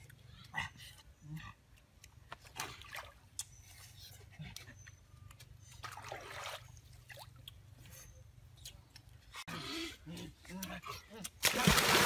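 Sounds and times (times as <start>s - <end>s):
stream water splashing and trickling: 2.3s - 4.1s, 5.7s - 7.9s, 11.4s - 12.0s.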